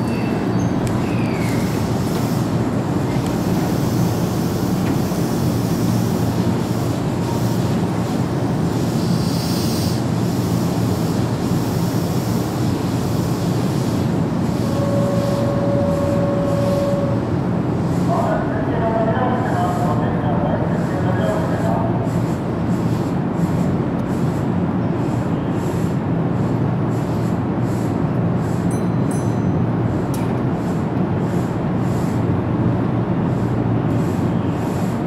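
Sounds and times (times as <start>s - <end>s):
electric train equipment humming: 0.0s - 23.7s
steady high tone: 14.7s - 17.2s.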